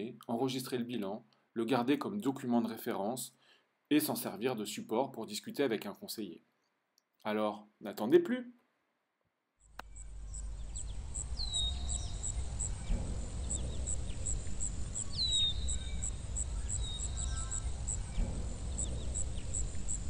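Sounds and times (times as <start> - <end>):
insect chirping: 9.6 - 20.0
low rumble: 9.7 - 20.0.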